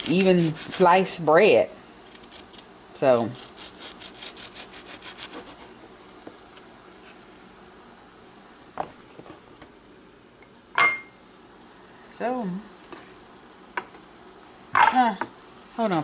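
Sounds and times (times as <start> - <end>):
knife sawing through tomato: 0.0 - 0.9, 3.2 - 5.7.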